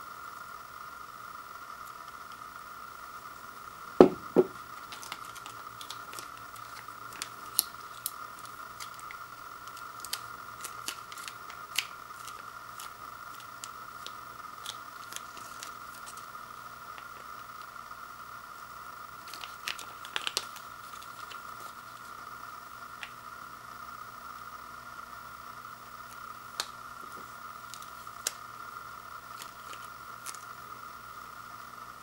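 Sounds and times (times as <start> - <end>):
dull knocks: 4.0 - 4.6
plastic packet crinkling: 4.4 - 16.3, 19.2 - 22.1, 29.3 - 30.5.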